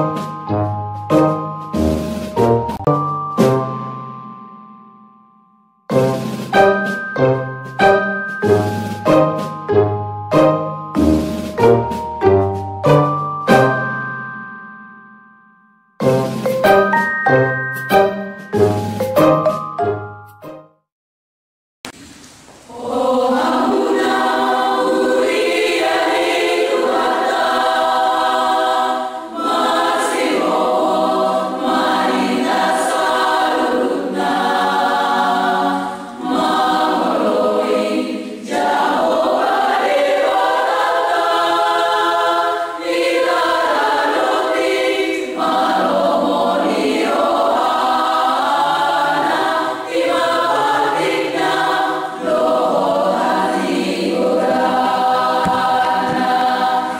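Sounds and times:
choir of young women singing: 22.7 - 56.9.

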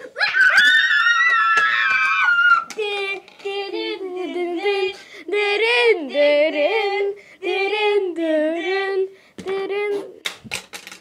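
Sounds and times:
girl singing wordless tune: 2.6 - 10.4.

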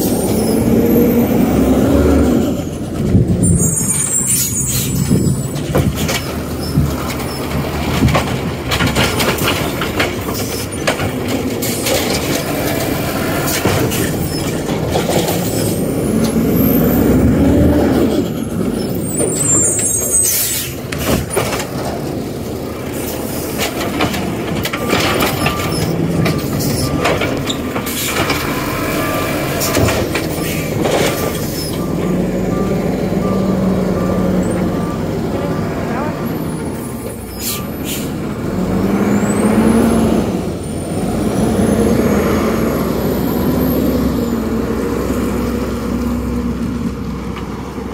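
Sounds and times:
diesel truck engine: 0.0 - 47.9
clattering knocks: 5.1 - 16.4
air brakes hissing: 19.5 - 21.1, 37.2 - 38.2.

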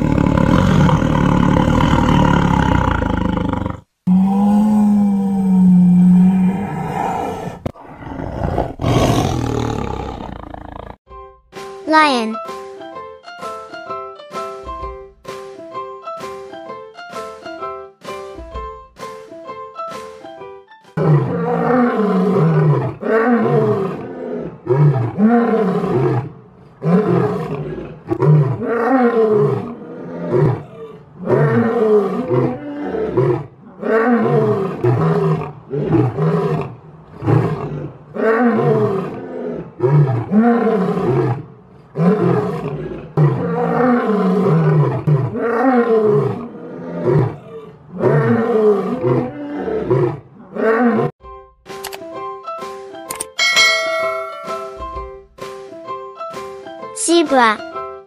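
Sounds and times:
lion roaring: 0.0 - 11.0, 21.0 - 51.1.

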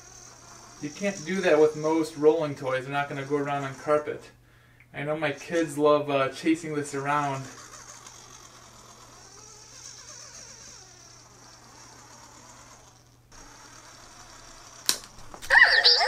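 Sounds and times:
robot ball motor whine: 0.0 - 4.2, 5.2 - 16.0
sharp click: 14.8 - 15.5.

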